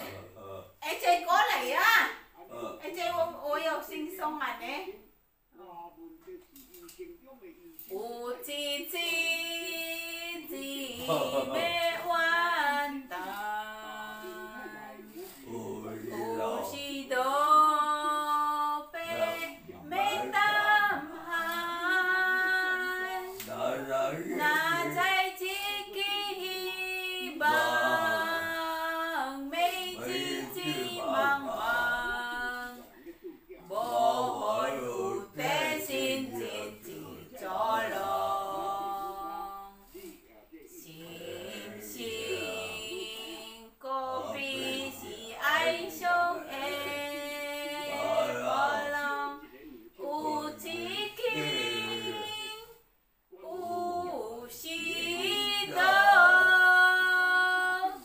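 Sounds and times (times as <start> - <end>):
woman singing unaccompanied: 8.0 - 23.5, 24.3 - 32.9, 50.0 - 52.8, 53.4 - 58.0.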